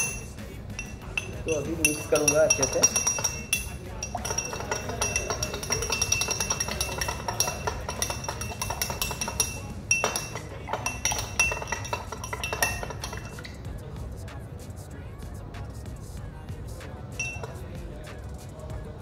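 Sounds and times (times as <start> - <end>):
spoon clinking against glass: 0.0 - 13.6, 17.2 - 17.7.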